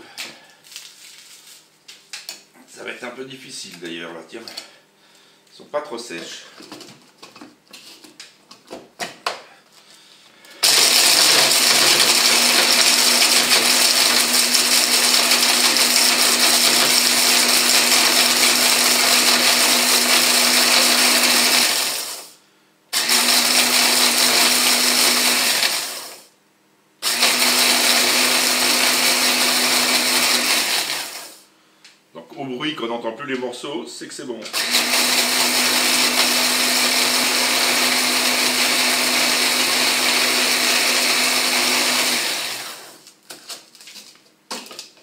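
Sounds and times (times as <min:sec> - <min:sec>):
hand blender grinding bread: 0:10.6 - 0:22.3, 0:23.0 - 0:26.2, 0:27.0 - 0:31.4, 0:34.5 - 0:44.8.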